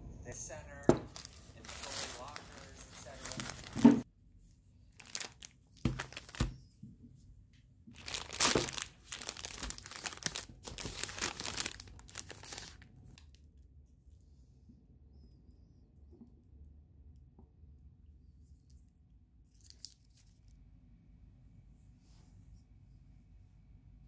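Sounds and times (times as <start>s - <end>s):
plastic packaging crinkling: 1.1s - 4.0s, 4.9s - 6.6s, 7.9s - 13.3s.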